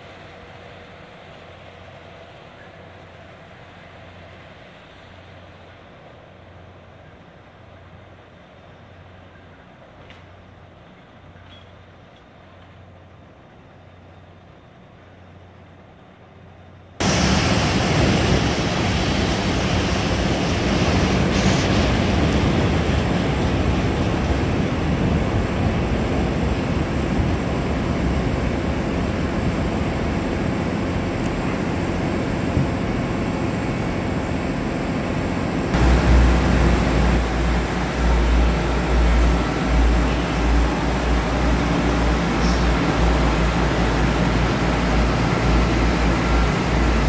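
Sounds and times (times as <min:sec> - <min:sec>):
railway station rushing noise: 0:00.0 - 0:47.0
diesel engine idling: 0:23.0 - 0:47.0.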